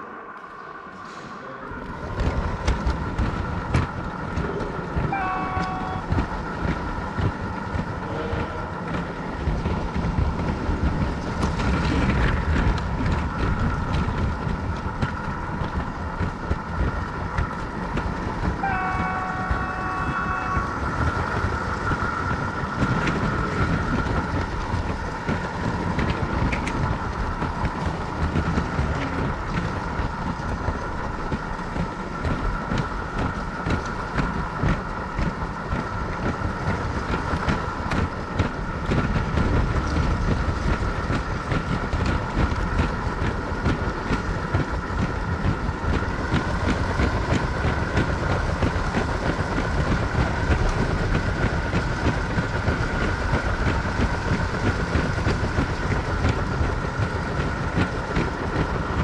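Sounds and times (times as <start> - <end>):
toy train rumbling and clicking on track: 2.0 - 59.0
train horn sound effect: 5.0 - 6.3, 8.0 - 9.2, 18.6 - 21.2.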